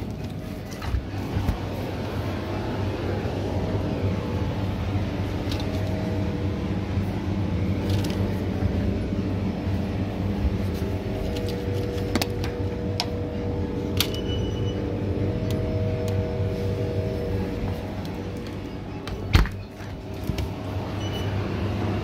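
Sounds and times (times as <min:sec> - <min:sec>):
low mechanical hum: 0:00.0 - 0:22.0
brief ringing tone: 0:14.1 - 0:14.9.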